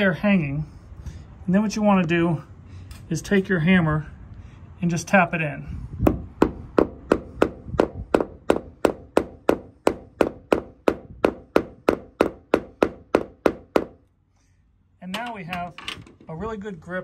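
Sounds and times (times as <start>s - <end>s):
hammer tapping nail: 6.1s - 14.0s.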